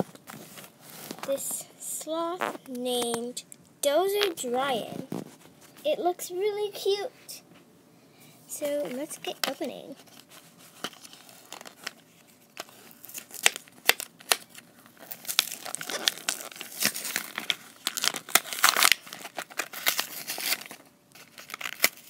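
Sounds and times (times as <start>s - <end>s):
plastic packaging tearing and crinkling: 8.9s - 22.0s.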